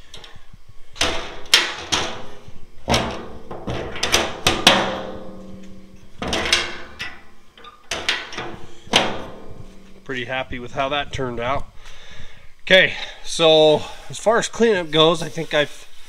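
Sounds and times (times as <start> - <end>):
metallic knocks and clanks: 1.0 - 10.1
thin metal sheet ringing: 3.0 - 10.5.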